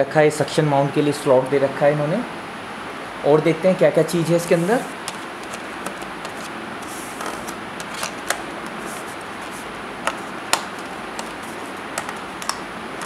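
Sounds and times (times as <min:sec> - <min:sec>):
background hiss: 0:00.0 - 0:05.3
cardboard packaging clicks and taps: 0:05.0 - 0:06.5, 0:10.0 - 0:12.6.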